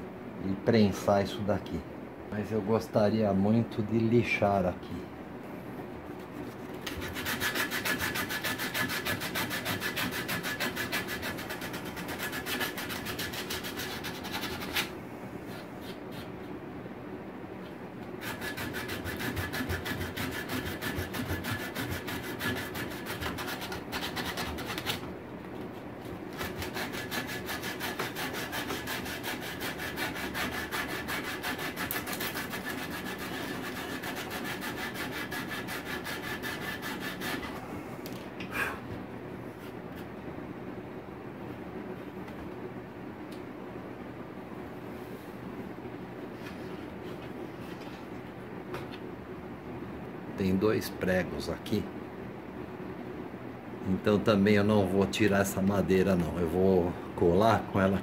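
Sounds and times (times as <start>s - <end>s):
sandpaper rubbing on wood: 6.9s - 14.9s, 18.2s - 25.0s, 26.4s - 37.5s.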